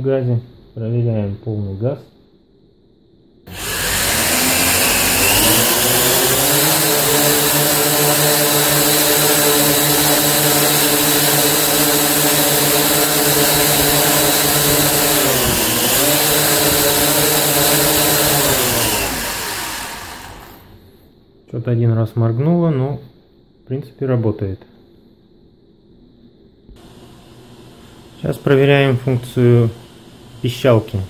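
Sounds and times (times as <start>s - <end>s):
drone motors and propellers spinning: 3.5s - 20.9s, 26.8s - 31.0s.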